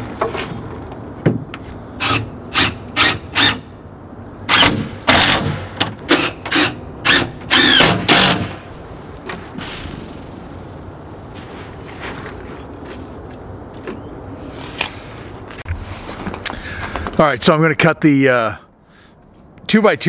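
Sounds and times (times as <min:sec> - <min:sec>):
cordless drill driving screws: 0:04.5 - 0:08.5.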